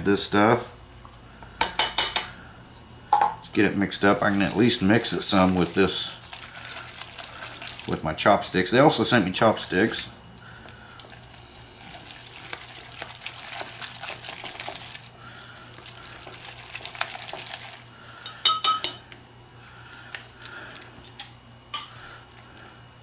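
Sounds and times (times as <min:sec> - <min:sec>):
chopsticks stirring noodles in bowl: 0:04.0 - 0:08.0, 0:09.7 - 0:17.9
utensils knocking against bowl: 0:18.2 - 0:19.0.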